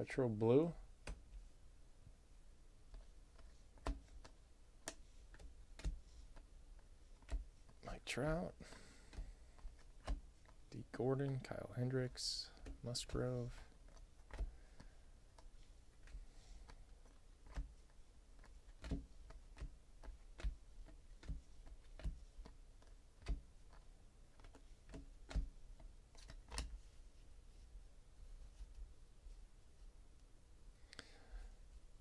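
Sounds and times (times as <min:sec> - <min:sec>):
cards being flipped: 0:02.9 - 0:07.8, 0:08.7 - 0:11.4, 0:12.5 - 0:27.0.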